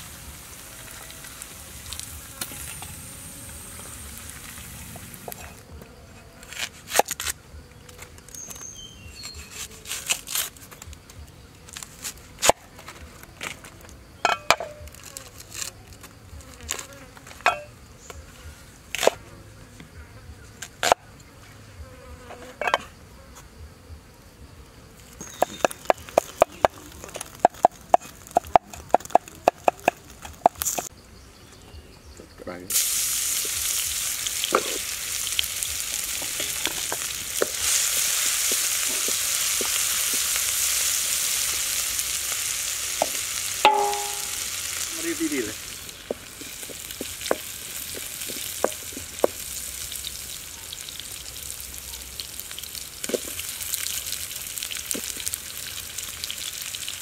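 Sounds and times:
fish sizzling in a pan: 0.0s - 5.6s, 32.7s - 57.0s
cleaver chopping on wooden board: 43.7s - 44.3s.

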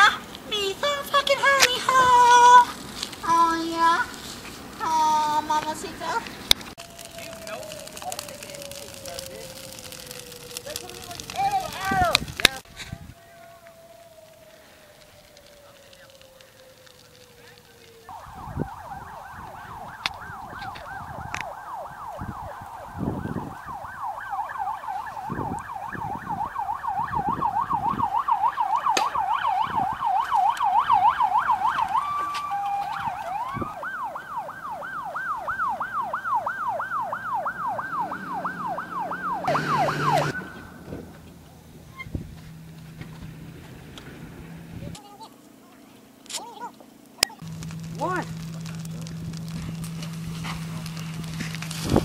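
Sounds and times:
ambulance siren yelping: 4.9s - 44.9s.

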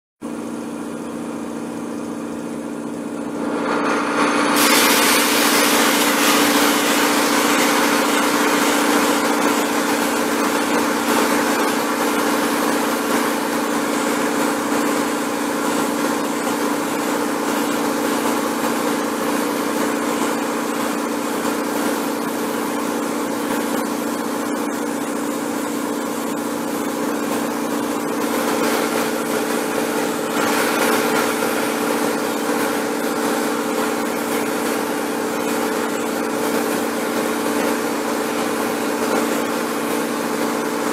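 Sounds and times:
air compressor motor running: 0.2s - 40.9s
spray gun hissing: 4.3s - 14.2s, 28.2s - 39.6s.

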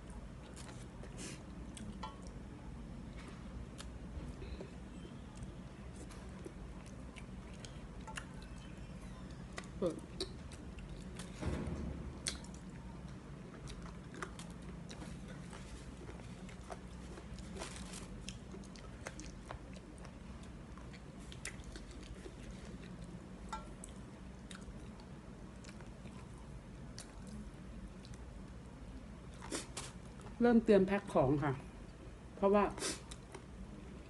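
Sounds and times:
steady low hum: 0.0s - 34.0s
person chewing and crunching: 5.4s - 8.7s, 13.5s - 26.3s.

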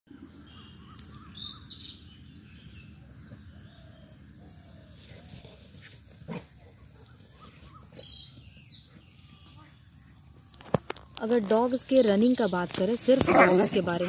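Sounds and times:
bird chirps: 0.1s - 5.4s.

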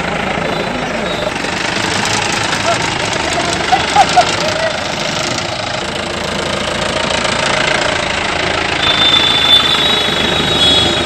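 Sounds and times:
engine knocking clatter: 0.0s - 11.0s.

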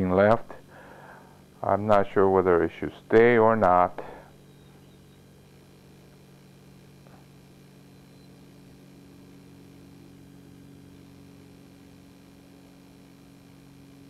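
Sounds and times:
low electrical hum: 0.0s - 14.0s
room hiss: 0.0s - 14.0s.

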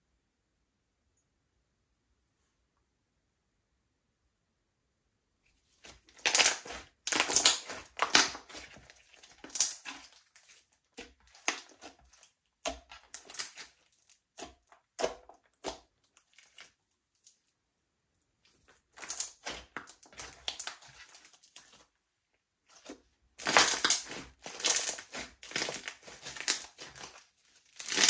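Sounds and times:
slime squishing and popping: 5.8s - 16.8s, 18.6s - 21.8s, 22.7s - 28.0s.

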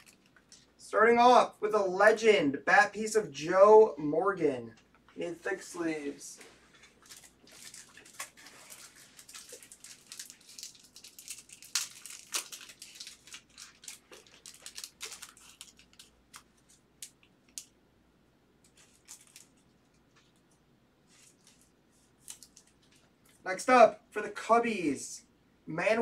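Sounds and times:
plastic and foil crinkling: 0.0s - 0.7s, 6.4s - 17.7s, 18.6s - 23.4s.

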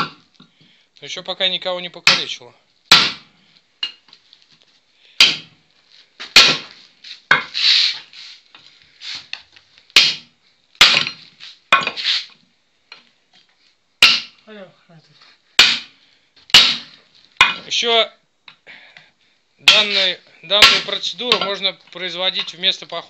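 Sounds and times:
sledgehammer clanking on steel: 10.0s - 12.0s, 16.5s - 17.8s, 19.6s - 21.6s.

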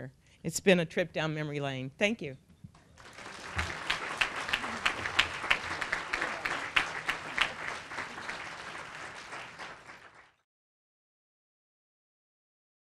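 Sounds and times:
audience applauding: 2.9s - 10.4s.

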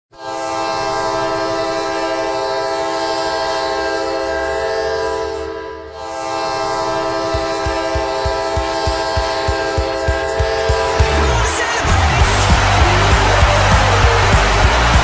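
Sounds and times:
goal horn blast: 0.1s - 15.0s.

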